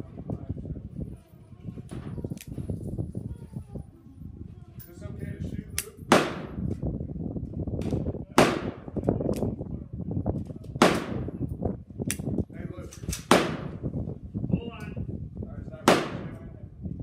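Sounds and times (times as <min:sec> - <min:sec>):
revolver shots with ringing echo: 0:06.1 - 0:06.6
sharp clicks: 0:12.1 - 0:13.3.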